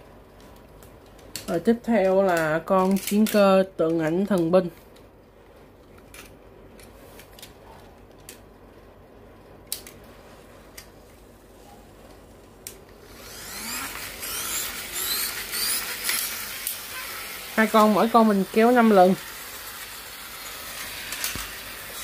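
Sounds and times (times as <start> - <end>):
plastic toys clicking: 1.2 - 4.5
toy car spring motor whirring: 13.0 - 22.0.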